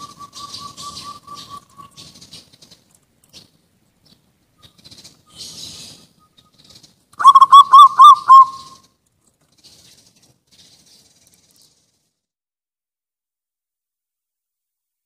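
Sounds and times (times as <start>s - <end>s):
dove cooing: 0.0s - 2.1s, 7.2s - 8.8s.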